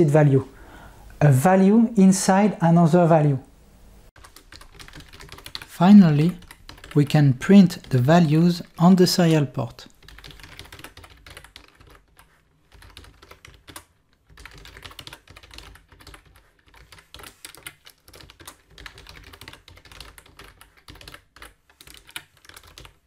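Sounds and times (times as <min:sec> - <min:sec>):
typing on computer keyboard: 0:04.2 - 0:07.0, 0:09.9 - 0:23.0.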